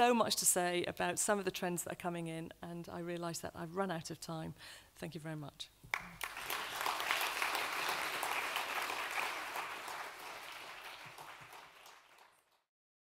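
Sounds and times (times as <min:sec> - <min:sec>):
audience applauding: 0:05.9 - 0:12.7.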